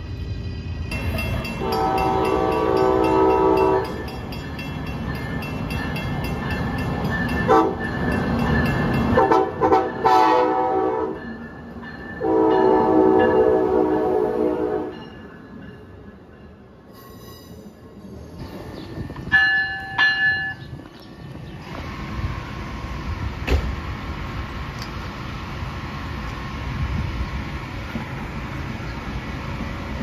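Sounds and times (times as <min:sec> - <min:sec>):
train rumbling on rails: 0:00.0 - 0:30.0
train air horn blasts: 0:01.6 - 0:04.0, 0:07.5 - 0:07.8, 0:09.2 - 0:11.2, 0:12.2 - 0:15.0.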